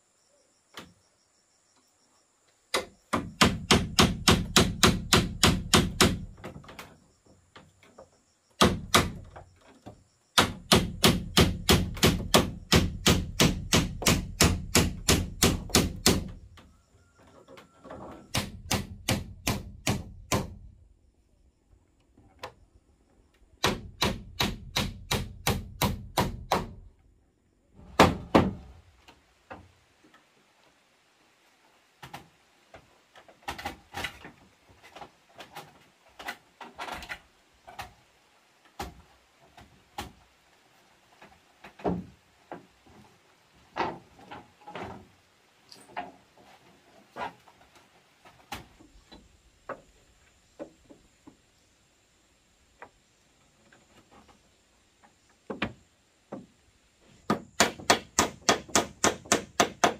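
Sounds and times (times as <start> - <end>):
hammer driving nails into wood: 2.7 - 6.6, 8.6 - 9.4, 10.4 - 16.4, 18.3 - 20.6, 23.6 - 26.9, 57.2 - 59.9
faint wooden knocks: 55.0 - 56.6.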